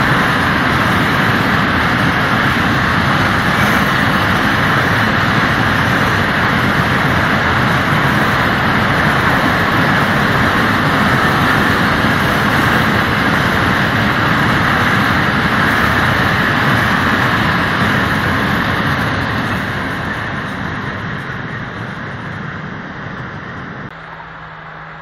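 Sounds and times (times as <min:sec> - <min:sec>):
freight train wheels on rails: 0:00.0 - 0:25.0.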